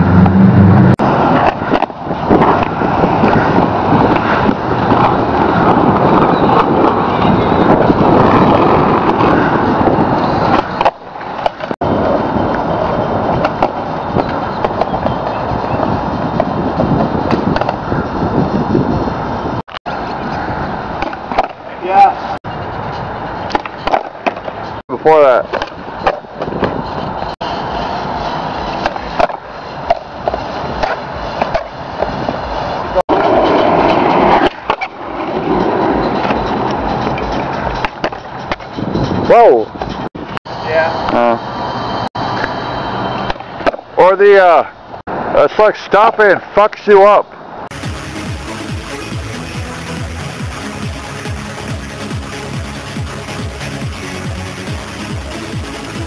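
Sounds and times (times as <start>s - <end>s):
skateboard wheels rolling on asphalt: 0.0s - 40.9s, 41.9s - 56.0s
skateboard clicks: 1.2s - 7.0s, 8.2s - 11.7s, 13.3s - 16.6s, 17.3s - 17.8s, 21.0s - 21.6s, 23.4s - 24.6s, 28.7s - 32.5s, 33.1s - 38.8s.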